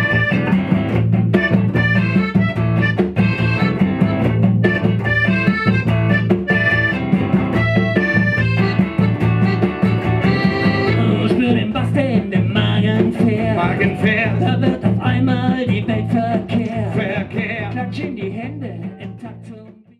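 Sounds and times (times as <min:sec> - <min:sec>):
band playing accordion and guitars: 0:00.0 - 0:19.7
man singing: 0:10.7 - 0:19.9.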